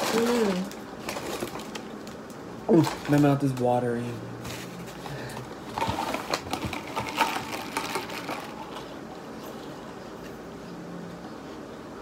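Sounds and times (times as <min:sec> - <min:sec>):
plastic bag crinkling: 0:00.0 - 0:03.7, 0:05.6 - 0:09.0.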